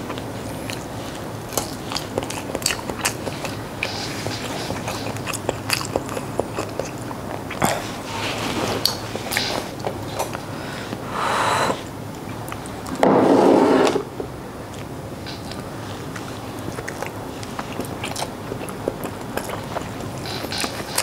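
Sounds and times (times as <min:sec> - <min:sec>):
wet chewing and mouth clicks: 0:00.1 - 0:08.0, 0:14.7 - 0:21.0.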